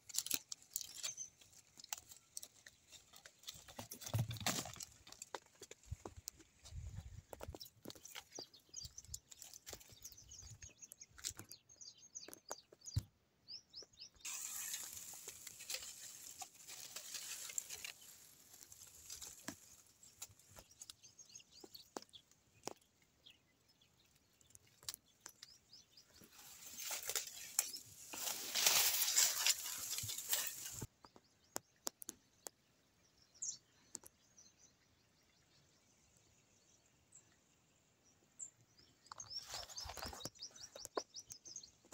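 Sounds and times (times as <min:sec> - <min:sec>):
dry leaves and twigs rustling: 0:00.0 - 0:11.5, 0:14.2 - 0:23.1, 0:24.0 - 0:30.9, 0:39.1 - 0:41.0
small birds chirping: 0:00.0 - 0:41.9.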